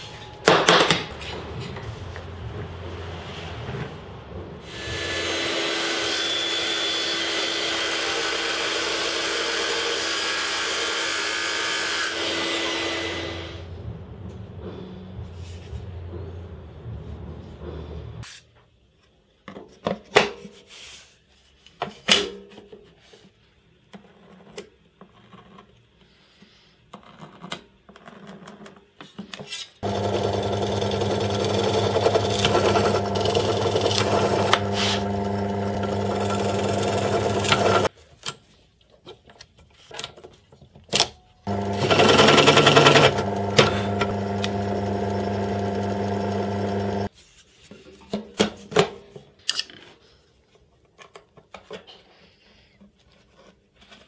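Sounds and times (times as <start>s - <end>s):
electric drill boring plywood: 4.6s - 13.7s, 29.8s - 37.9s, 41.5s - 47.1s.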